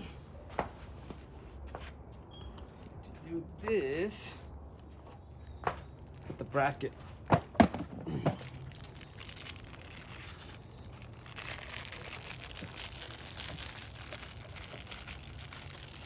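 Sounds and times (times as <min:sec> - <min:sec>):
plastic packaging crinkling: 0:08.4 - 0:16.0.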